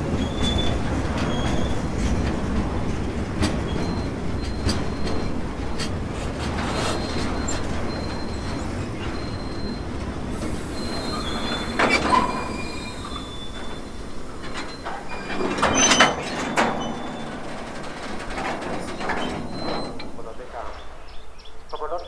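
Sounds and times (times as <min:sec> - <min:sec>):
steel wheels rumbling on rail: 0:00.0 - 0:21.7
high-pitched wheel squeal: 0:00.2 - 0:02.2, 0:06.6 - 0:17.5.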